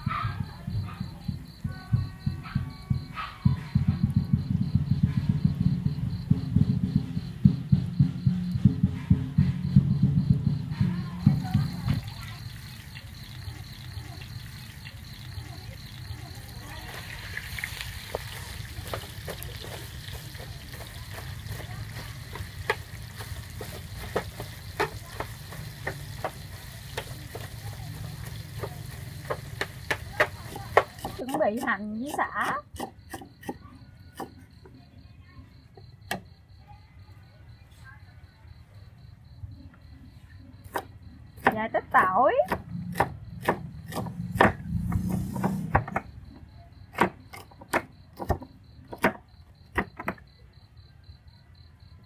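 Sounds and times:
faint oil sizzle: 11.3s - 31.3s
cleaver chopping on wooden board: 42.5s - 46.1s, 46.9s - 50.2s.

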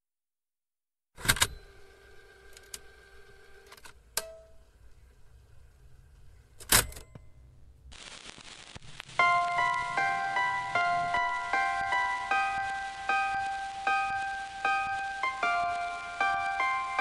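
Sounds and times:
faint hiss: 7.9s - 17.0s
keyboard music with bell-like notes: 9.2s - 17.0s.

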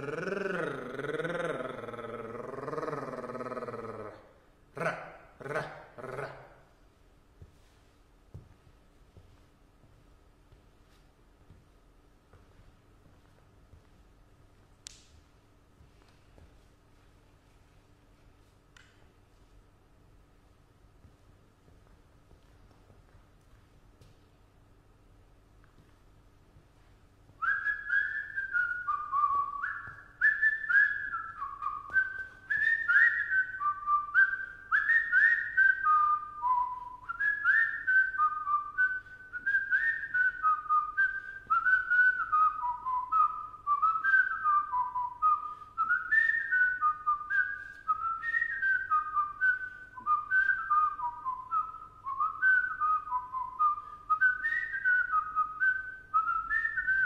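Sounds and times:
person whistling a tune: 27.4s - 57.0s.

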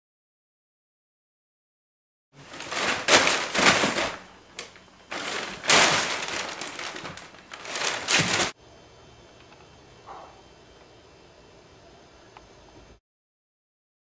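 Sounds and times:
crumpled paper rustling: 2.4s - 8.6s.

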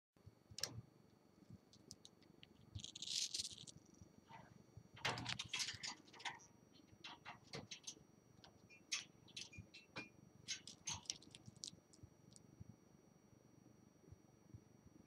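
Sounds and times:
bird crunching fruit: 1.7s - 12.4s.

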